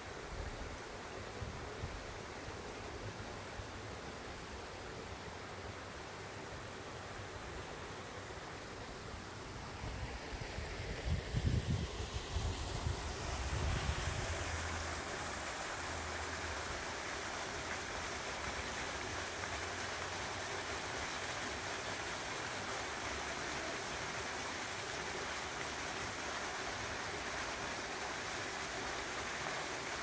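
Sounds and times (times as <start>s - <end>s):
waterfall splashing: 11.8s - 30.0s.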